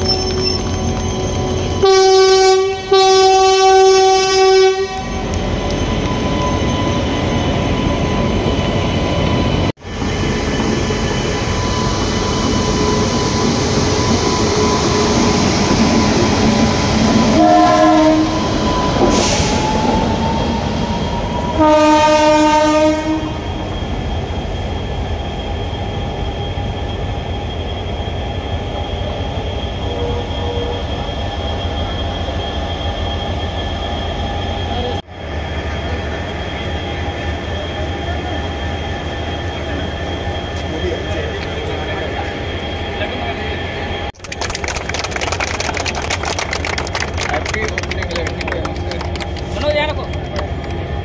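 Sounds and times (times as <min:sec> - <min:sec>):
electric locomotive whine: 0:00.0 - 0:51.0
locomotive horn blasts: 0:01.8 - 0:05.2, 0:17.2 - 0:18.6, 0:21.5 - 0:23.4.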